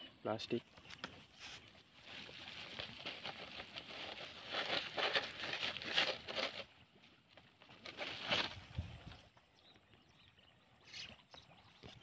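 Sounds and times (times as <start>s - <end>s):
plastic bag crinkling and rustling: 2.0s - 8.8s.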